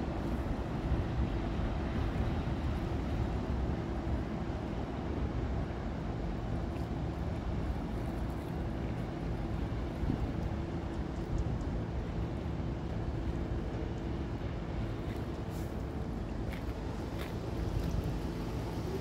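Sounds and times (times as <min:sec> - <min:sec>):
ship diesel engine drone: 0:00.0 - 0:19.0
wind noise: 0:07.3 - 0:19.0.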